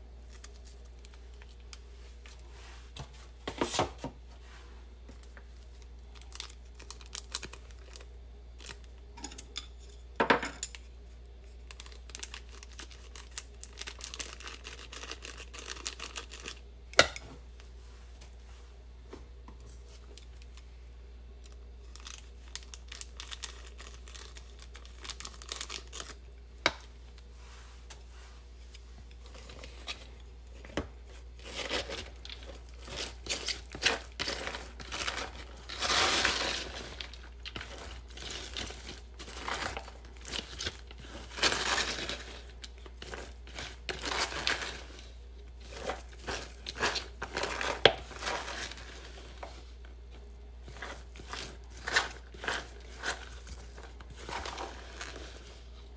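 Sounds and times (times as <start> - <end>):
plastic packet tearing and crinkling: 6.1 - 8.9, 11.6 - 16.6, 21.8 - 26.2, 31.4 - 49.0
chopsticks stirring batter in cup: 28.6 - 55.9.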